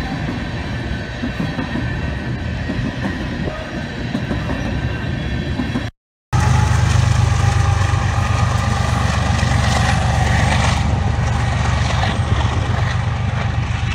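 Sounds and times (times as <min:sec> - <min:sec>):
locomotive engine drone: 0:06.4 - 0:13.9.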